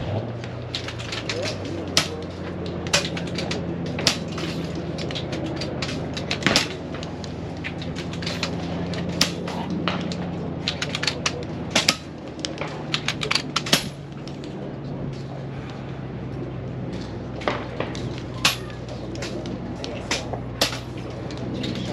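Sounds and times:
steady low hum: 0:00.0 - 0:21.9
air rifle cracks: 0:02.9 - 0:14.5.

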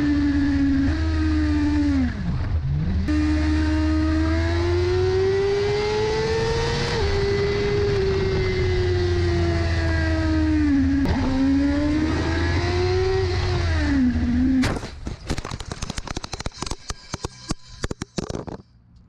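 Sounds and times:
motorcycle engine at high speed: 0:00.0 - 0:14.6.

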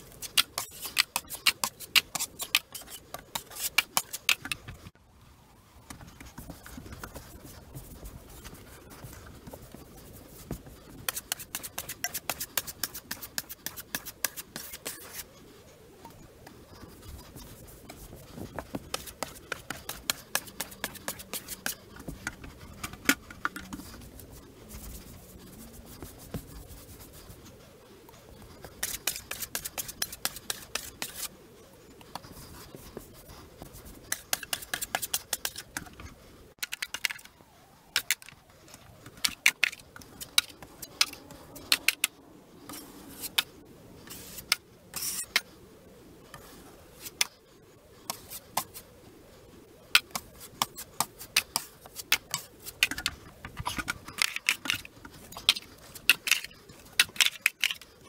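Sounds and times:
sandpaper scratching: 0:00.0 - 0:04.8, 0:06.1 - 0:15.3, 0:16.9 - 0:27.5, 0:28.6 - 0:31.4.

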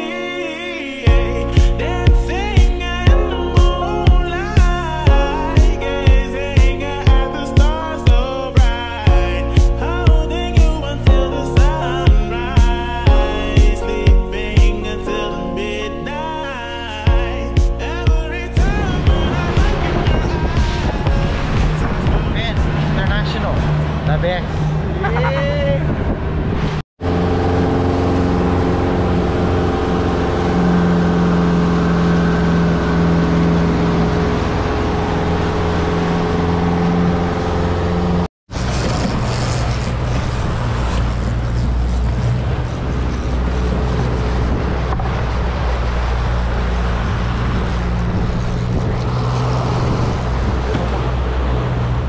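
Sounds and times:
water rushing: 0:16.2 - 0:52.0
wind noise: 0:18.2 - 0:32.2, 0:38.5 - 0:52.0
outboard motor running: 0:18.6 - 0:52.0.

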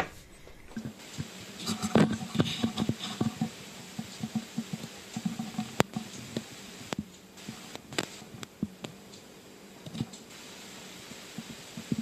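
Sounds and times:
crackling clicks: 0:00.0 - 0:10.3
faint steady hum: 0:00.0 - 0:12.0.

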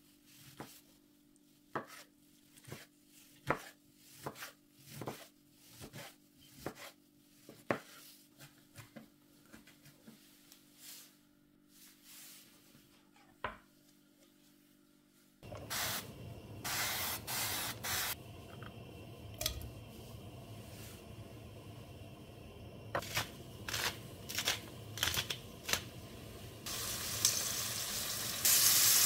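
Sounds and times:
steady sizzling hiss: 0:15.4 - 0:29.0.

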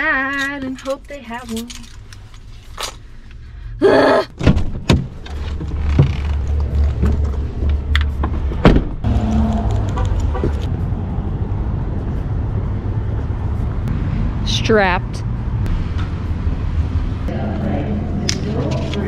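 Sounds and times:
car door slamming: 0:04.4 - 0:05.2, 0:08.2 - 0:09.1.

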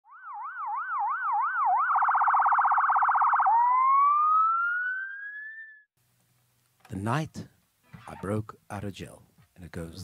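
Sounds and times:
electronic siren wailing: 0:00.1 - 0:05.9.

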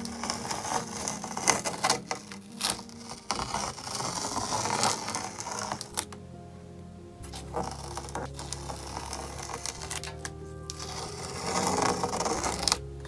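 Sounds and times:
tape being peeled off: 0:00.0 - 0:06.2, 0:07.2 - 0:12.9.

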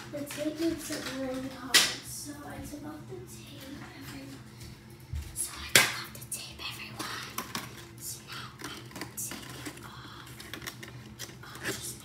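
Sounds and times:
plastic items clicking and rustling: 0:00.1 - 0:01.9, 0:07.0 - 0:08.0, 0:08.6 - 0:12.0.

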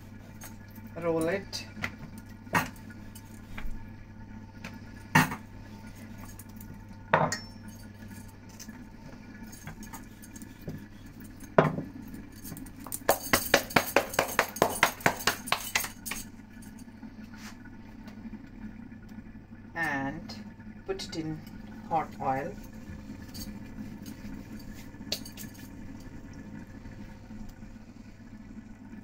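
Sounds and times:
rolling pin rolling dough on stone: 0:13.0 - 0:16.0.

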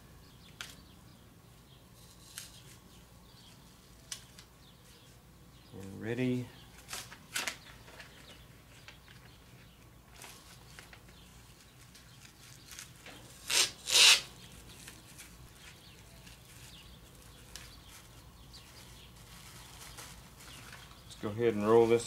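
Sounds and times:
plastic film rustling: 0:06.8 - 0:22.0
masking tape tearing: 0:12.1 - 0:15.3.

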